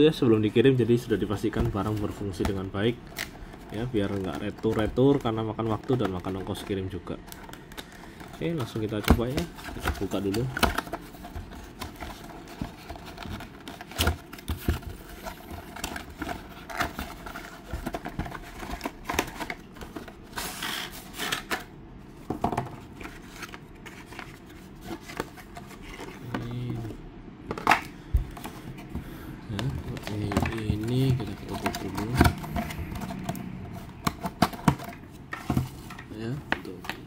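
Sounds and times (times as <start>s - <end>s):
cardboard box rustling: 7.3s - 21.6s, 22.2s - 37.0s.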